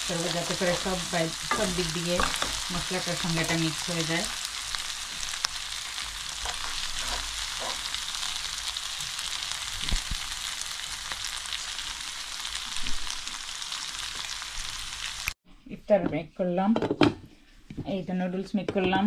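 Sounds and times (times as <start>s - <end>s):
food sizzling in a wok: 0.0s - 15.4s
metal tongs knocking: 1.4s - 2.6s.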